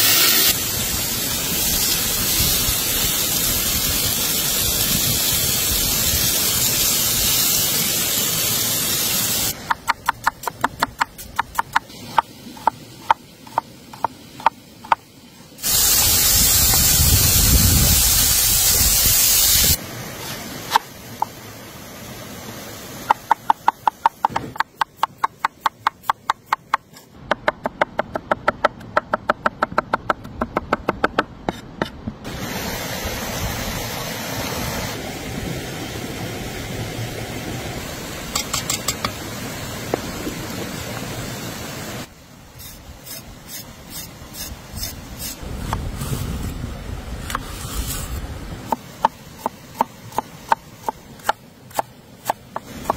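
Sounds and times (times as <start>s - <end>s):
steaming pot hissing: 0.0s - 9.7s, 15.6s - 20.8s
loud hiss: 0.0s - 9.8s, 15.6s - 23.2s, 32.3s - 48.4s.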